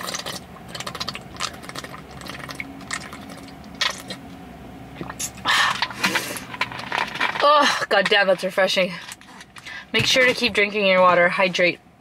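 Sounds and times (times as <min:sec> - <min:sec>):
person gulping water: 0:00.0 - 0:06.3.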